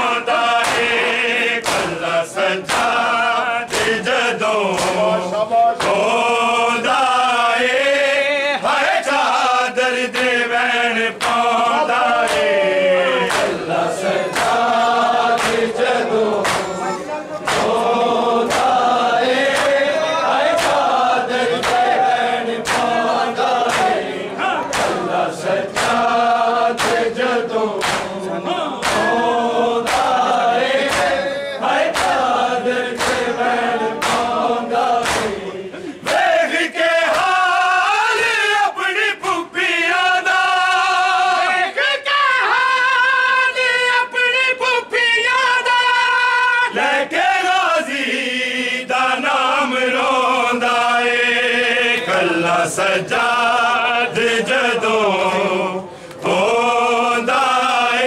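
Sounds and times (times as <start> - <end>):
men chanting in unison: 0.0 - 58.0
hands slapping chests: 0.3 - 6.2, 11.1 - 37.5, 51.9 - 52.4.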